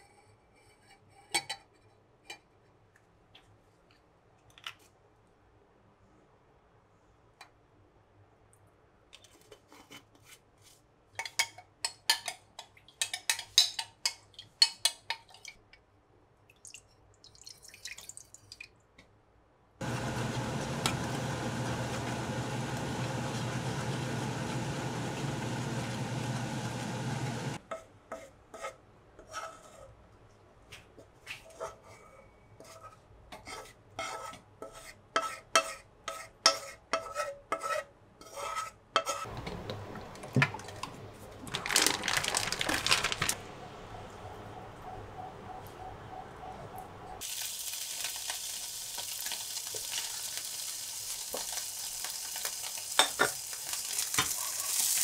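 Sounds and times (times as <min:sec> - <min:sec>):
spoon scraping and tapping pan: 0:11.2 - 0:15.6, 0:32.6 - 0:39.8
induction hob hum: 0:19.8 - 0:27.6
sauce hissing in frying pan: 0:47.2 - 0:55.0.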